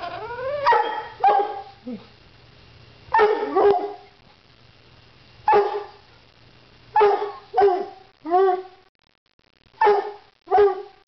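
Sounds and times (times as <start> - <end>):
dog barking: 0.6 - 1.8, 3.1 - 4.1, 5.5 - 6.0, 7.0 - 8.0, 9.8 - 11.0.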